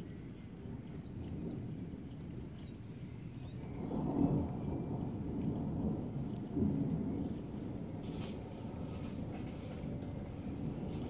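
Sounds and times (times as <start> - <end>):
small birds chirping: 0.0 - 4.6
thunder rumbling: 3.7 - 11.0.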